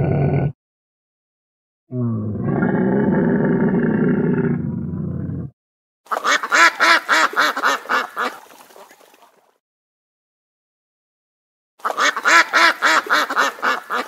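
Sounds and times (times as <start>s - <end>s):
duck nasal honking calls: 6.2s - 8.3s, 11.8s - 14.0s.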